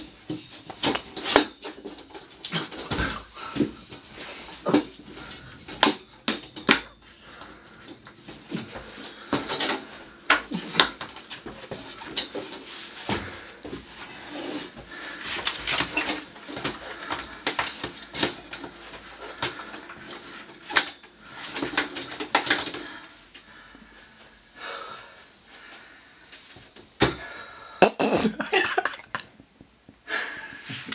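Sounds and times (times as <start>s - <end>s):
ironing board clanking and rattling: 0.0s - 14.1s, 14.9s - 23.0s.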